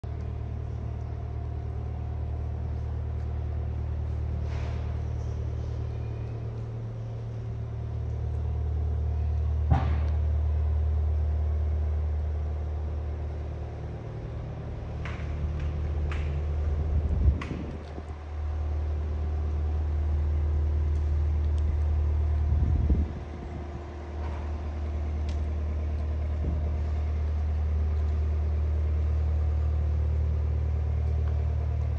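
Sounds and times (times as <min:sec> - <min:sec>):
tractor diesel engine idling: 0:00.0 - 0:31.9.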